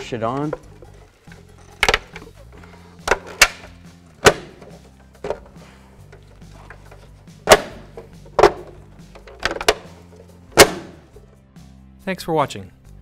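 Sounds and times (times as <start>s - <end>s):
hubcap knocked onto wheel: 7.4s - 9.9s.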